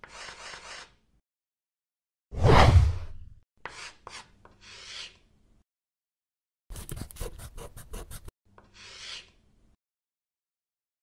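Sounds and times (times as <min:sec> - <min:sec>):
marker scribbling: 0:00.0 - 0:01.0, 0:03.6 - 0:05.2, 0:06.7 - 0:09.3
swish: 0:02.3 - 0:03.4.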